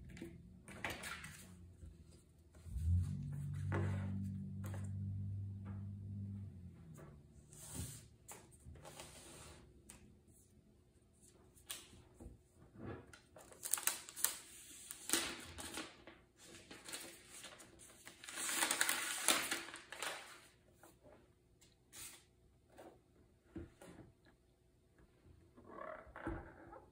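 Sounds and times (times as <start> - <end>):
plastic wrap rustling: 13.4 - 20.6.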